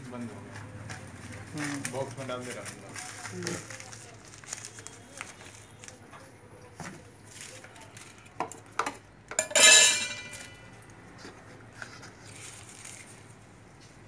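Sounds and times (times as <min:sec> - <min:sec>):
metal items clinking on counter: 0:08.4 - 0:10.8
loud ringing metallic clatter: 0:09.4 - 0:10.6.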